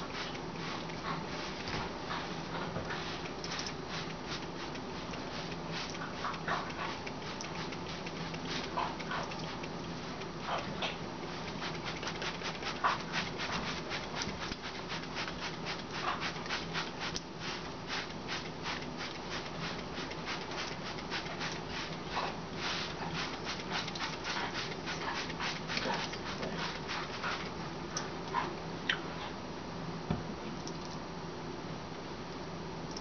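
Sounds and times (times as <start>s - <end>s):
spray bottle hissing sprays: 3.0s - 10.3s, 11.3s - 27.6s.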